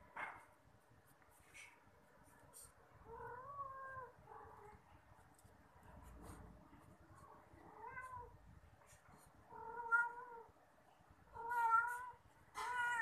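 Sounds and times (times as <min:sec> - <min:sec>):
cat meowing: 0:09.5 - 0:10.5, 0:11.3 - 0:13.0.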